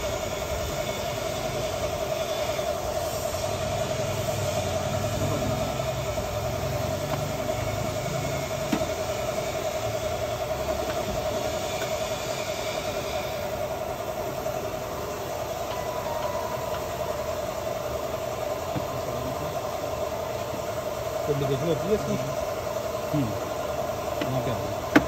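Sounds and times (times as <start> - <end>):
mechanical drone with low rumble: 0.0 - 25.0.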